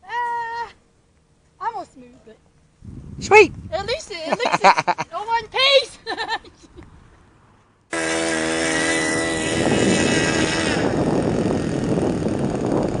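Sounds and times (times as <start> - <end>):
model airplane engine droning: 7.9 - 13.0.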